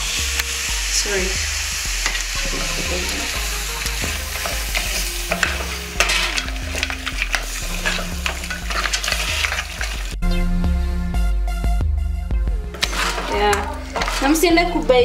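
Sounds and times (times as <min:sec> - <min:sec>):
meat sizzling: 0:00.0 - 0:10.2, 0:12.7 - 0:15.0
music: 0:00.0 - 0:15.0
spoon scraping and knocking pot: 0:03.8 - 0:10.0, 0:12.8 - 0:14.8.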